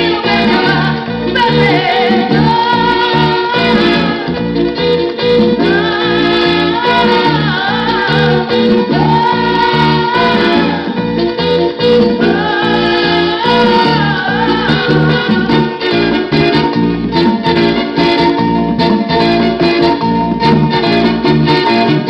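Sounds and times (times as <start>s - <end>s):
sung vocals: 0.0s - 4.6s, 5.2s - 11.2s, 11.8s - 16.7s
guitar: 0.0s - 22.0s.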